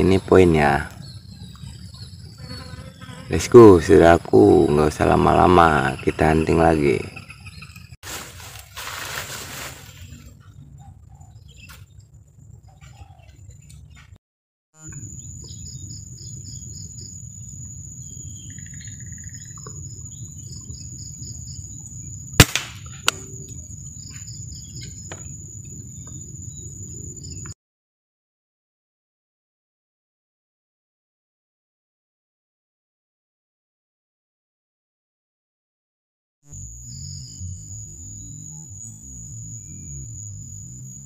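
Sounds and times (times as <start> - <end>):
birds chirping: 0.0 - 8.0, 9.8 - 14.2, 14.8 - 27.6, 36.5 - 41.0
air rifle shot: 22.4 - 23.3
steady high whine: 36.5 - 41.0.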